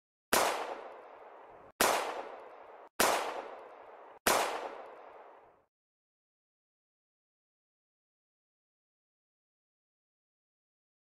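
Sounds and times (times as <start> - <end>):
handgun shots with echo: 0.3 - 5.3.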